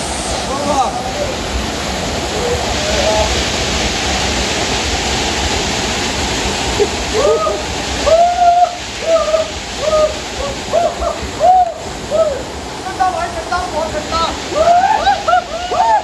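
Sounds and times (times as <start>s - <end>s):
waterfall pouring: 0.0s - 16.0s
short hooting cries: 7.2s - 12.5s.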